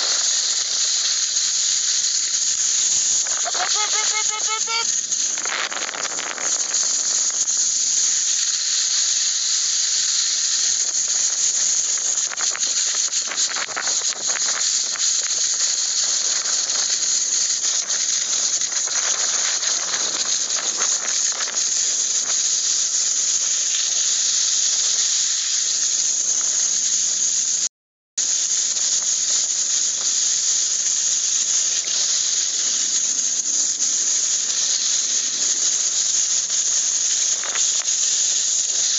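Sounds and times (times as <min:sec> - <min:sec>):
skis sliding over snow: 0:11.4 - 0:22.6.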